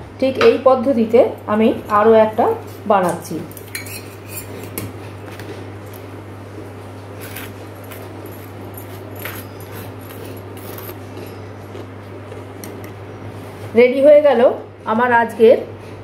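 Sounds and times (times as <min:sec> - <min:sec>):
steady low hum: 0:00.0 - 0:16.0
spoon scraping steel bowl: 0:03.7 - 0:04.8.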